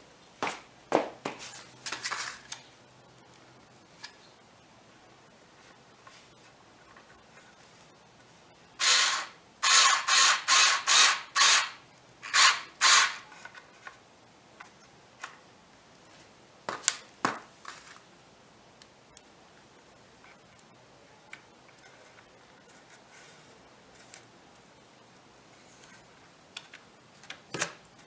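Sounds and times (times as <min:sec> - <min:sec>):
power drill driving a screw: 0:08.8 - 0:13.2.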